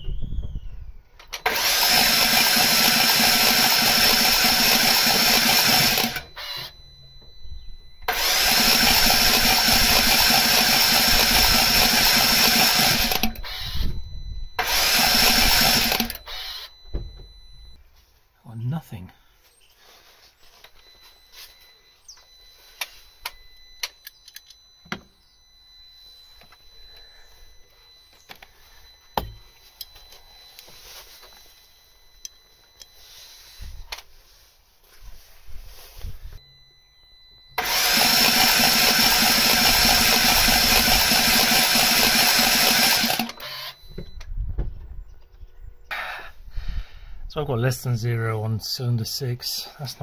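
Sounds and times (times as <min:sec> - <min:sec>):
starter motor cranking engine: 0:01.3 - 0:06.8, 0:08.0 - 0:13.8, 0:14.6 - 0:16.7, 0:37.6 - 0:43.8.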